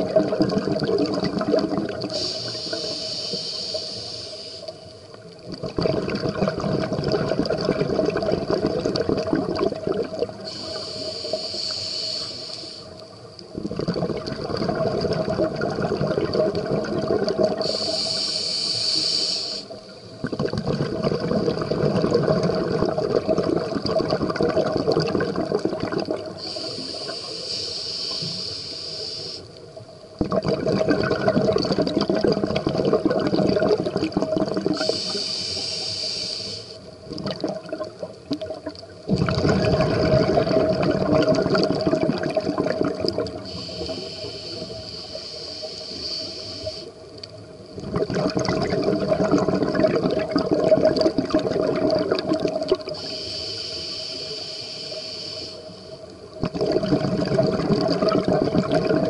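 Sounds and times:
burble of exhaled bubbles: 0:00.0 - 0:02.2, 0:05.2 - 0:10.5, 0:13.5 - 0:17.7, 0:20.2 - 0:26.5, 0:30.1 - 0:35.0, 0:37.0 - 0:43.6, 0:47.3 - 0:53.0, 0:56.3 - 0:59.0
regulator hiss of inhaled air: 0:02.0 - 0:04.9, 0:10.4 - 0:13.1, 0:17.5 - 0:20.2, 0:26.3 - 0:29.6, 0:34.7 - 0:36.9, 0:43.3 - 0:47.1, 0:52.9 - 0:56.1.

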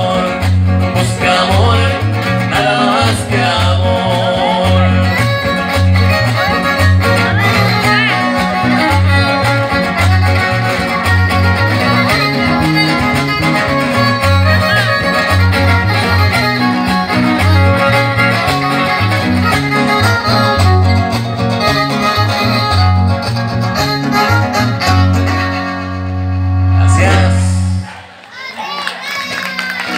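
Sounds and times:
strummed guitars: 0:00.0 - 0:28.2
violin melody: 0:04.9 - 0:27.9.

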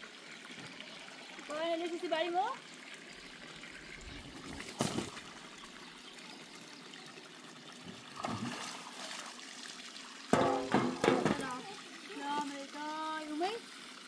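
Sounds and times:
water trickling: 0:00.0 - 0:14.0
sharp knock: 0:10.4 - 0:11.4.

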